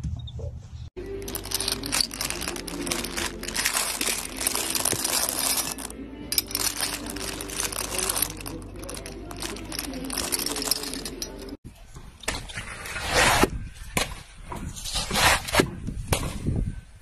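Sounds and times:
metal scoop digging through candies: 1.0s - 11.6s.

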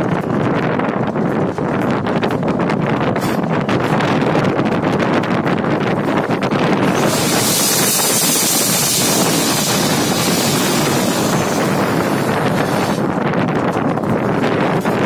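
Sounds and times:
locomotive cab rumbling rush: 0.0s - 15.0s
bright hiss: 6.9s - 13.0s.

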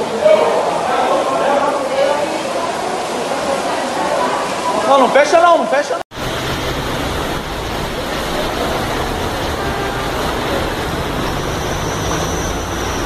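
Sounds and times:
floodwater rushing: 0.0s - 13.0s
car engines humming: 6.1s - 13.0s.

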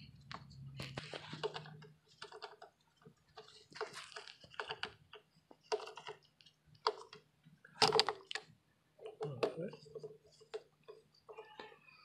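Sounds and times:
screwdriver rattling on plastic cover: 1.0s - 7.2s.

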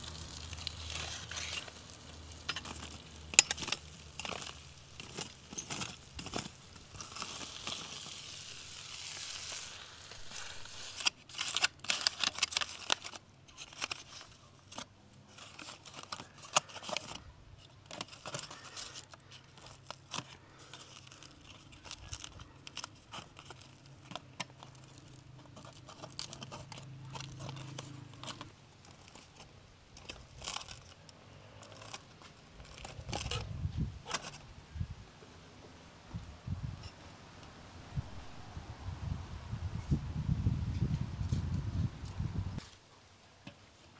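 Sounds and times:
aluminium foil crinkling: 0.0s - 34.4s
metal tongs clicking and scraping: 1.0s - 8.0s.

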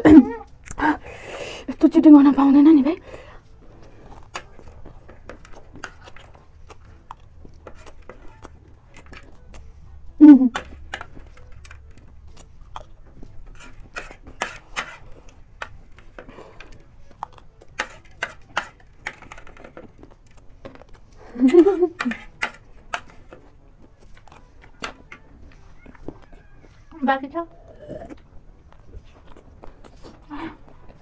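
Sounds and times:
crunchy chewing: 3.7s - 9.7s, 10.9s - 26.9s, 27.5s - 31.0s
spoon scraping on plate: 13.4s - 16.7s, 17.7s - 20.0s, 21.9s - 26.0s.

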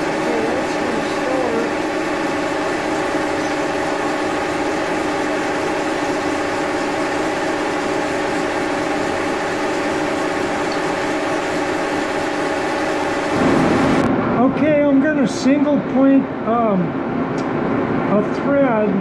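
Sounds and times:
milling machine humming: 0.0s - 14.1s.

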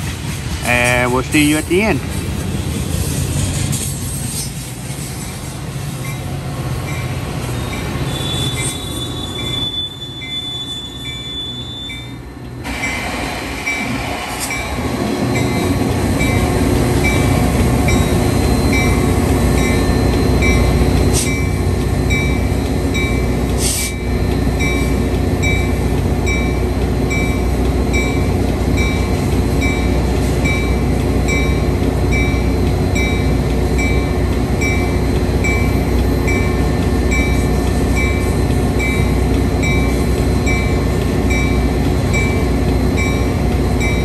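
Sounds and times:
train rumbling past: 0.0s - 44.0s
high wheel squeal: 7.5s - 12.2s.

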